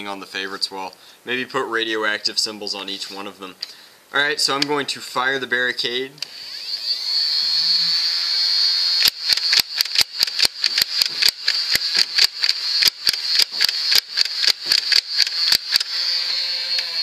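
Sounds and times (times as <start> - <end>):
flywheel motor whining: 6.2 - 17.0
sharp mechanical clicks: 8.9 - 17.0.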